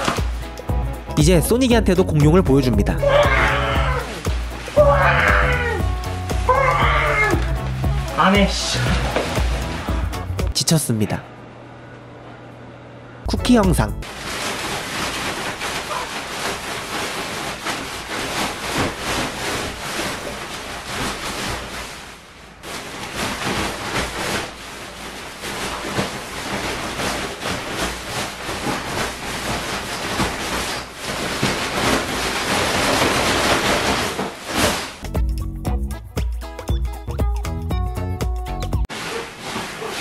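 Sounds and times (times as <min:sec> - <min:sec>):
inflatable costume rustling: 0:00.0 - 0:01.4, 0:02.7 - 0:10.6, 0:14.0 - 0:35.0, 0:38.8 - 0:40.0.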